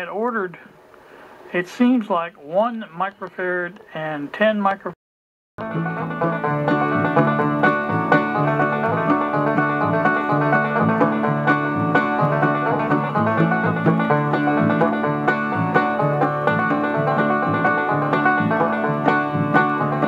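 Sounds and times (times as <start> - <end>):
plucked string music: 5.6 - 20.0.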